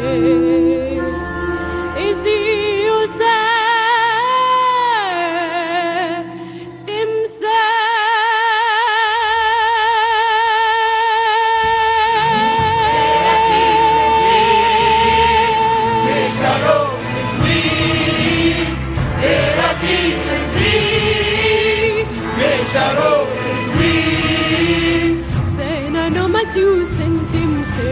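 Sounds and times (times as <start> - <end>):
choir singing: 12.0 - 25.4.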